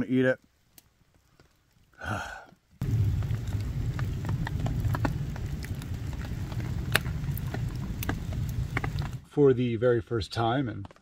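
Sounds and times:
campfire crackling and popping: 0:00.0 - 0:09.3
steady low rush: 0:02.8 - 0:09.2.

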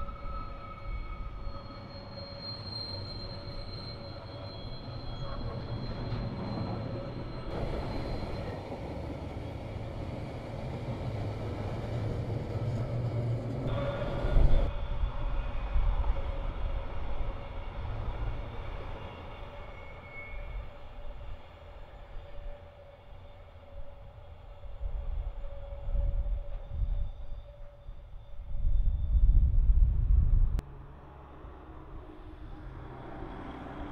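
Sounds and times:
wheels squealing: 0:00.0 - 0:23.2
train wheels rumbling on rails: 0:00.0 - 0:33.9
train jolt: 0:01.9 - 0:20.7.

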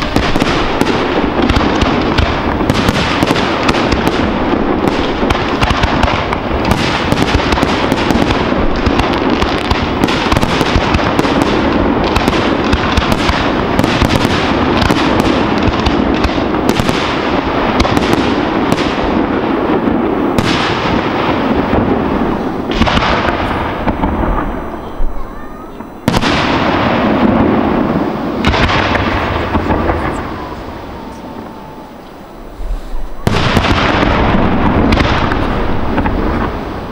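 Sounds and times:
fireworks bangs: 0:00.0 - 0:36.9.

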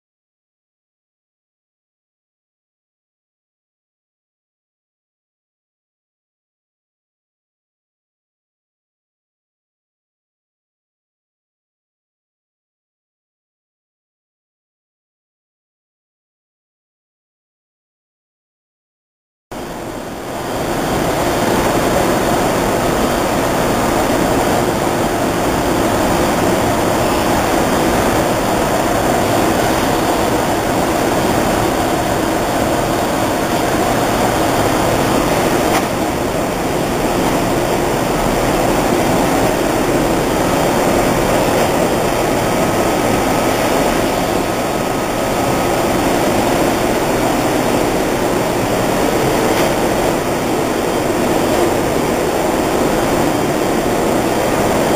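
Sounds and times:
printing press whirring: 0:19.6 - 0:54.9.

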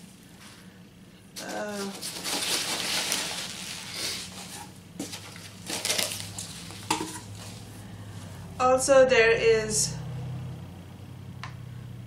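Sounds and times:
packing peanuts rustling: 0:01.4 - 0:07.6.

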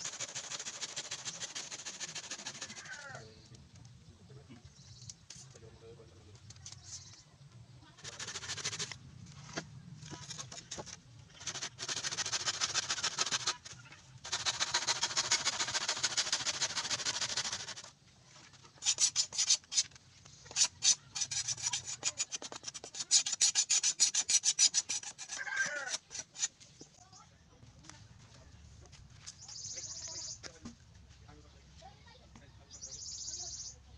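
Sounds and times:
hand saw cutting bamboo: 0:00.0 - 0:03.0, 0:08.0 - 0:09.0, 0:10.4 - 0:17.9, 0:18.8 - 0:19.9, 0:20.5 - 0:26.6.

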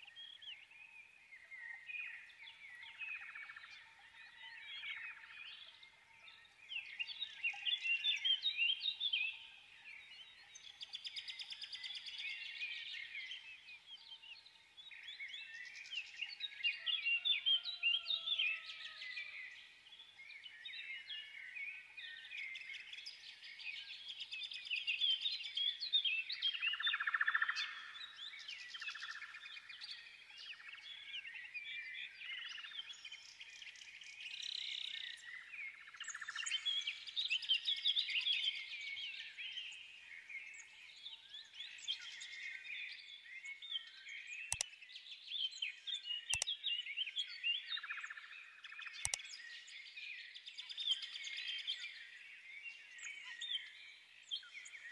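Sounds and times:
small birds chirping: 0:18.1 - 0:54.9
sharp clicks: 0:49.0 - 0:49.2.

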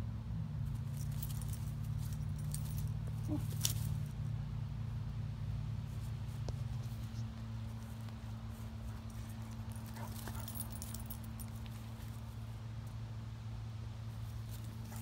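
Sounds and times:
steady low hum: 0:00.0 - 0:15.0
dog collar tags jingling: 0:00.7 - 0:04.3, 0:08.9 - 0:12.3.

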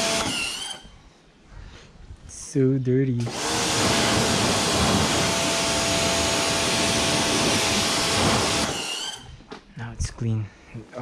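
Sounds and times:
pressure washer motor whine: 0:00.0 - 0:00.9, 0:03.3 - 0:09.3
water jet hissing: 0:03.3 - 0:09.3.

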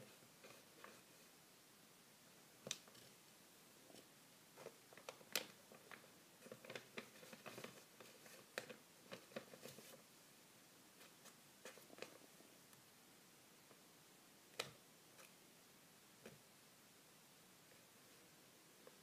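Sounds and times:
paper rustling: 0:04.6 - 0:10.0.

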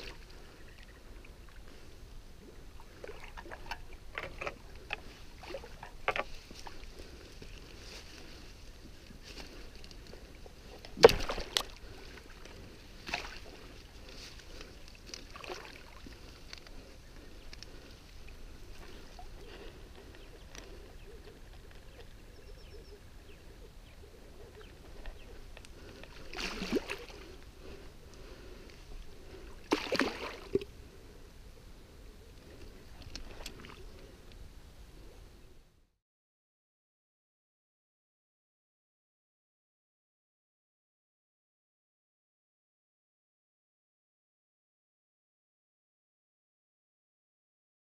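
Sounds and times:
fish splashing in water: 0:10.6 - 0:13.7, 0:14.4 - 0:16.5, 0:26.1 - 0:27.4, 0:29.6 - 0:30.7.

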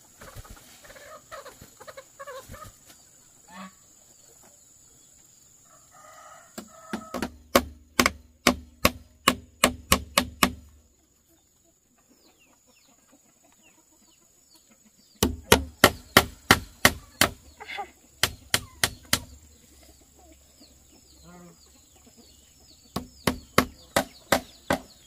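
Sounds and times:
small birds chirping: 0:00.0 - 0:25.0
hand tool striking building material: 0:06.9 - 0:10.7, 0:15.2 - 0:17.4, 0:18.2 - 0:19.3, 0:22.9 - 0:24.9.

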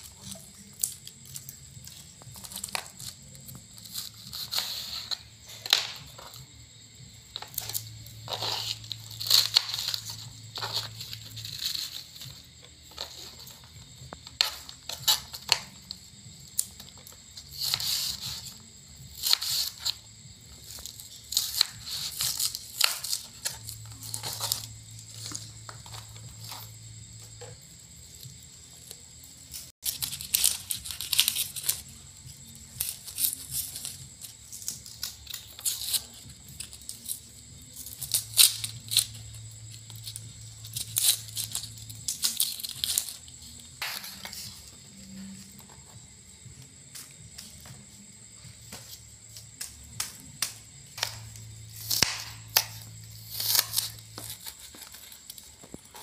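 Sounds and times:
cabbage crunching and snapping: 0:00.0 - 0:06.5, 0:07.3 - 0:44.9, 0:50.0 - 0:56.0
papery onion skin rustling: 0:00.0 - 0:56.0.

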